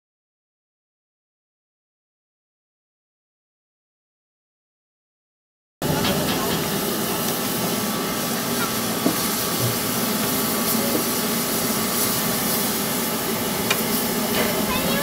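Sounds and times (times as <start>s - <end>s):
steam hissing: 5.8s - 15.0s.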